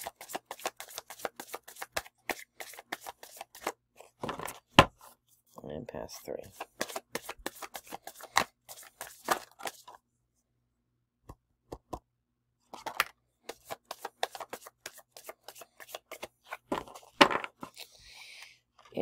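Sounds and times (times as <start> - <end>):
cards being shuffled: 0.0 - 5.1, 6.4 - 10.0, 12.7 - 18.0.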